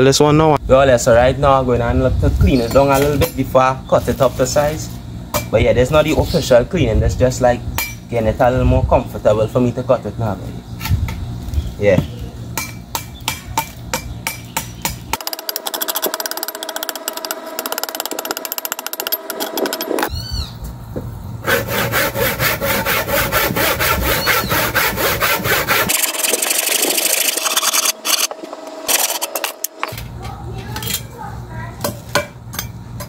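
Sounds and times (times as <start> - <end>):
handsaw cutting log: 21.4 - 29.3.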